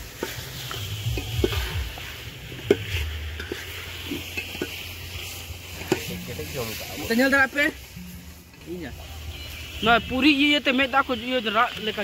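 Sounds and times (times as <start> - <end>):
ladle scraping in a pot: 0.1 - 7.1
metal clinking on a pot: 2.6 - 4.9.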